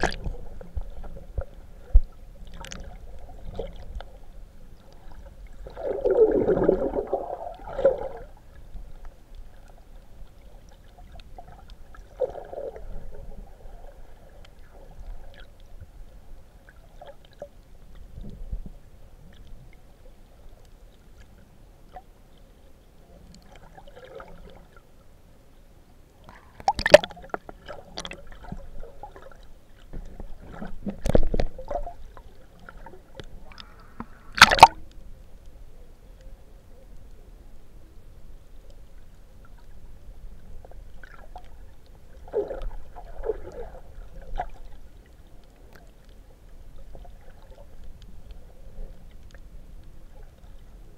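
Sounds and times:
water gurgle and slosh: 0.0s - 25.2s, 26.1s - 50.9s
sharp water splashes: 26.6s - 27.3s, 34.3s - 34.8s.

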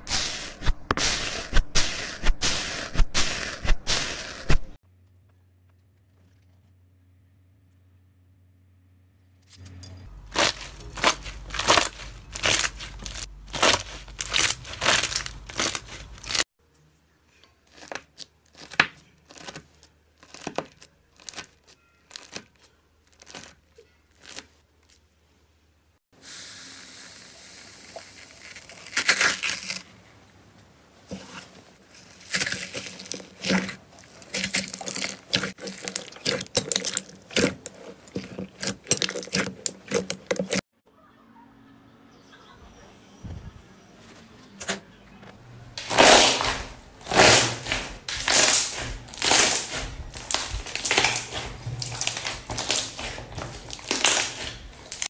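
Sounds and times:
slime hissing and popping: 0.0s - 4.7s, 45.8s - 55.0s
slime crackling by hand: 10.3s - 16.4s, 45.8s - 55.0s
knife cutting crunchy clay: 10.3s - 16.5s, 32.0s - 40.6s, 45.8s - 55.0s.

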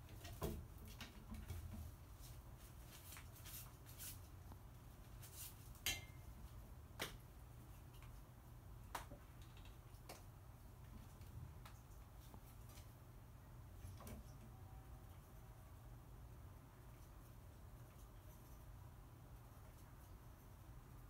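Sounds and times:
crow clicks and taps: 8.9s - 12.9s.

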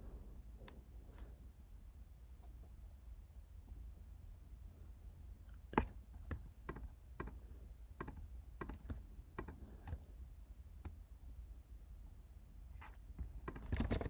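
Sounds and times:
low room hum: 0.0s - 14.0s
mouse and keyboard clicks: 5.7s - 7.4s, 8.0s - 10.1s.

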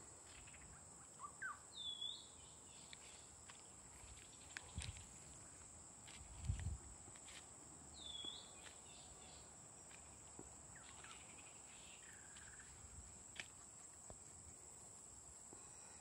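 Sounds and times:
insects droning: 0.0s - 16.0s
footsteps on dry ground: 2.9s - 9.0s, 9.9s - 14.5s.

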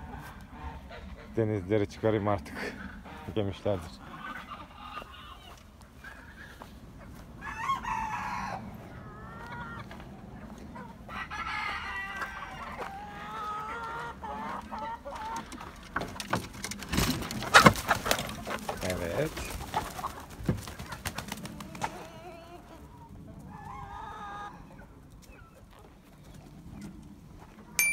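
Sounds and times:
chickens clucking: 0.0s - 27.9s
roosters crowing: 4.0s - 15.9s
wooden coop knocks and bang: 15.5s - 18.4s, 20.4s - 20.8s.

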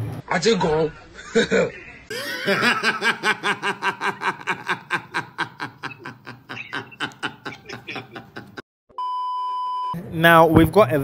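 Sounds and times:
man laughing: 1.2s - 8.6s.

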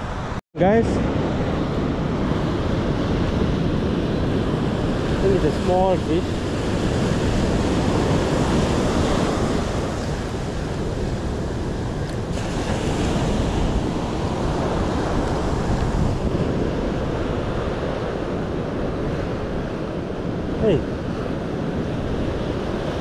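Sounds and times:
ocean surf: 0.0s - 23.0s
wind buffeting microphone: 0.0s - 23.0s.

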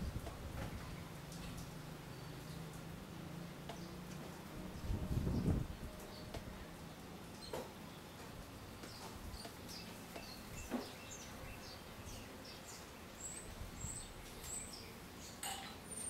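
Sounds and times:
sparrows chirping: 4.8s - 16.0s.

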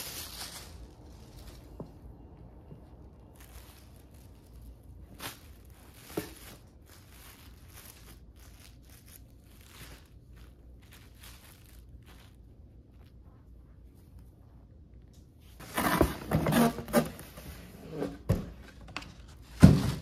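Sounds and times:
knit fabric rustling: 0.0s - 14.9s.

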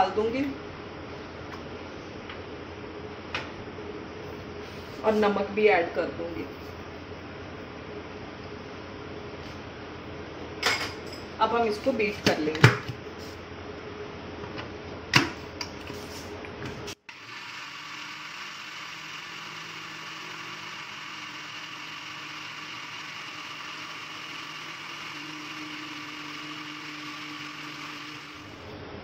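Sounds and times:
mixer grinder whining: 17.0s - 28.8s.

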